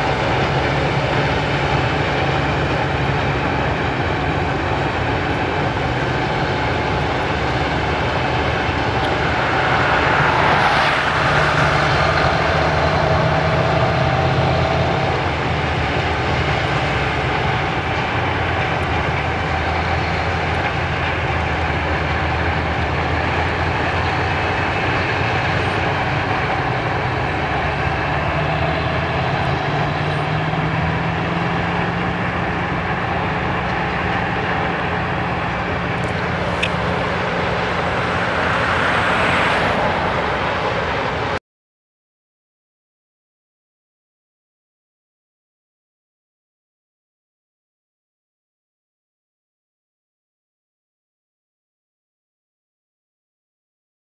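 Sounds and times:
rushing swell: 0.0 - 16.6, 23.4 - 41.4
diesel engine drone: 0.0 - 41.4.

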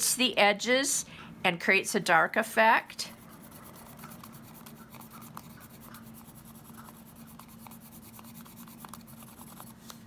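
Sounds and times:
faint steady hum: 0.0 - 10.0
pencil scratching on plastic: 3.0 - 9.9.

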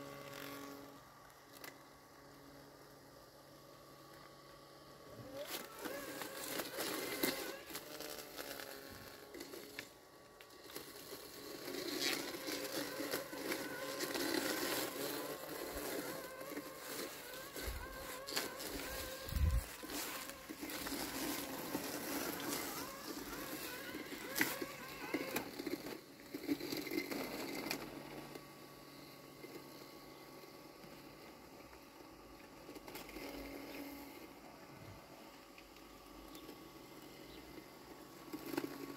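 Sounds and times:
robotic lawn mower motor hum: 0.0 - 38.9
clicks and rustles in weeds: 5.3 - 28.4.

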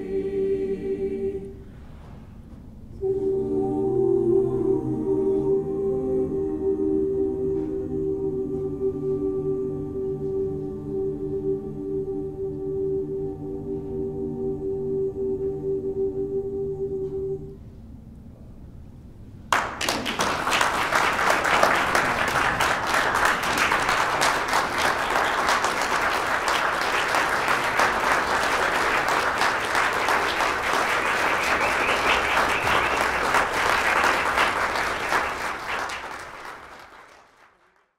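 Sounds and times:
audience applauding: 19.5 - 37.9.

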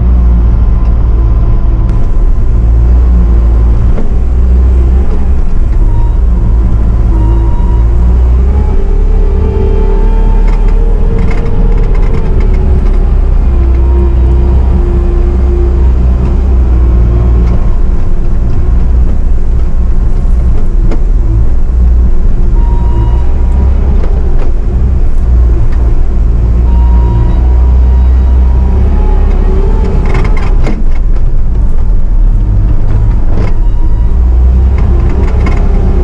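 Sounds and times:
diesel engine running: 0.0 - 36.0
short rattles and knocks: 10.1 - 15.0, 29.7 - 33.7, 34.4 - 36.0.

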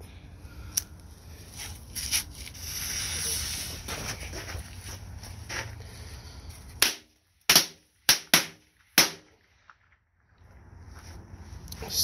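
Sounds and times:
firecracker bangs: 6.8 - 9.3.

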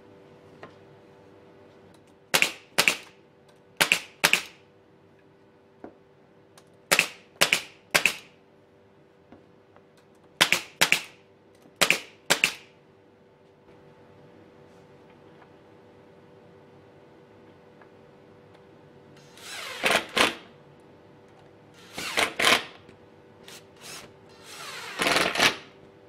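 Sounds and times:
nail gun firing: 2.3 - 3.2, 3.8 - 4.6, 6.9 - 8.3, 10.4 - 11.2, 11.8 - 12.7, 19.3 - 20.5, 21.9 - 22.8, 24.6 - 25.7.

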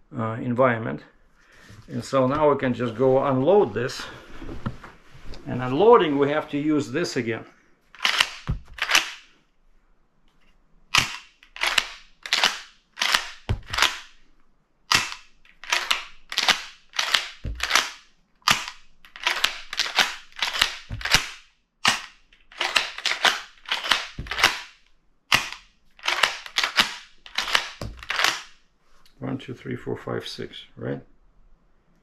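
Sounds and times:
shotgun bolt racking clacks: 8.0 - 9.3, 10.9 - 14.2, 14.9 - 28.5.

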